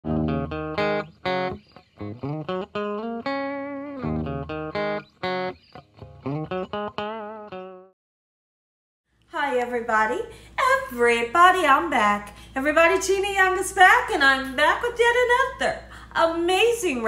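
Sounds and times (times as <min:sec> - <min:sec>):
guitar melody with bending notes: 0:00.0 - 0:07.9.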